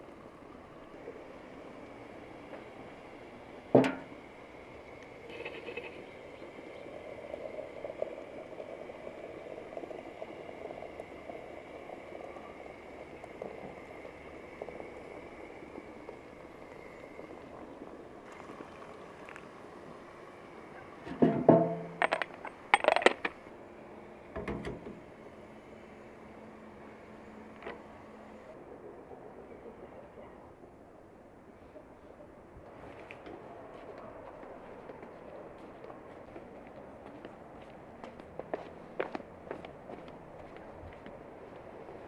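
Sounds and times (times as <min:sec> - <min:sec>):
hot water running into teapot: 0:06.2 - 0:21.0
porcelain clinking on metal: 0:21.6 - 0:23.3.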